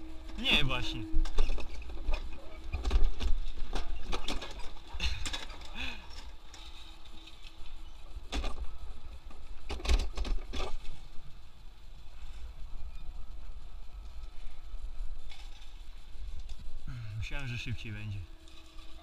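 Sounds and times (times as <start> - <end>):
coaster sled rumbling on track: 0.0 - 19.0
wheels clicking and clunking: 1.2 - 11.2.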